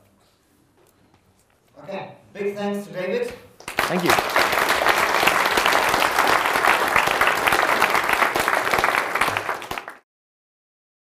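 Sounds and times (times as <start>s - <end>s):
audience applauding: 3.6s - 10.0s.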